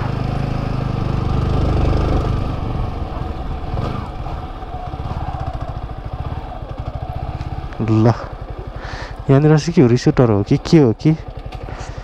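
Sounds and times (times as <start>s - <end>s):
motorcycle engine putter: 10.0s - 12.0s.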